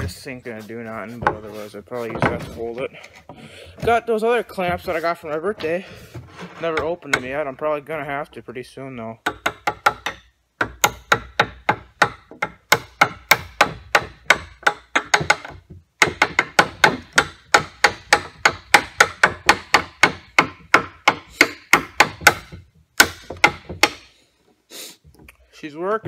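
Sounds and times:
hammer striking wood: 9.2s - 24.1s.

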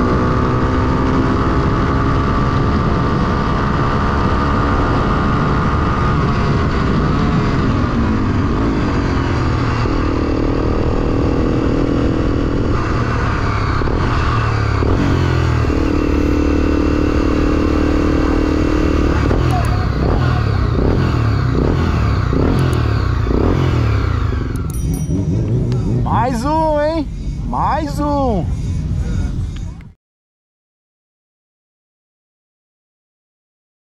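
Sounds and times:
wind rushing over microphone: 0.0s - 24.6s
motorcycle engine: 0.0s - 29.8s.

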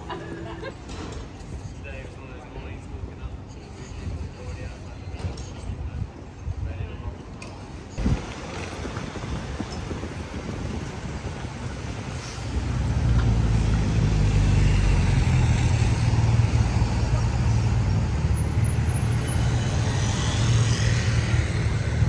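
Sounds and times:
road noise: 0.0s - 22.0s
vehicle engine rumble: 7.5s - 22.0s.

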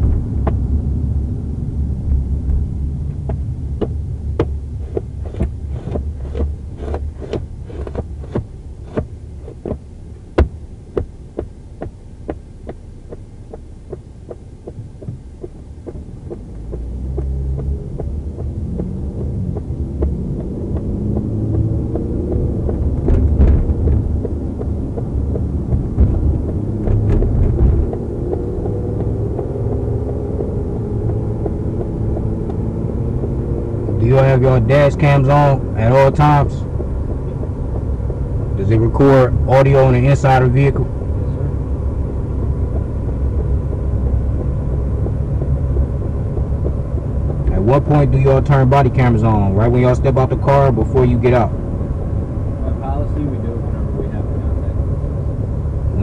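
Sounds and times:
low rumble of car on road: 0.0s - 56.0s
regular clicking: 10.4s - 32.6s
knocks: 13.9s - 29.1s.

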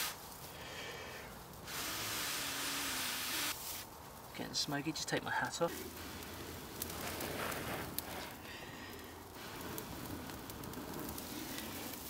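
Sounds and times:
sharp pops of fire: 0.0s - 0.5s, 1.2s - 4.3s, 5.4s - 12.0s
person blowing on ember: 0.0s - 3.8s
tinder crackling and hissing: 0.0s - 12.0s.

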